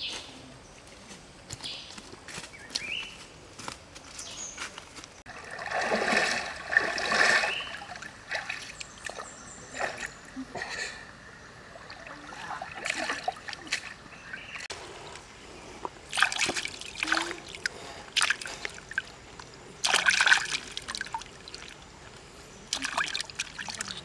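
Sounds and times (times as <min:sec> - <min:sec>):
water splashing: 0:05.3 - 0:14.7, 0:16.0 - 0:24.0
water trickling: 0:05.3 - 0:14.7, 0:16.0 - 0:24.0.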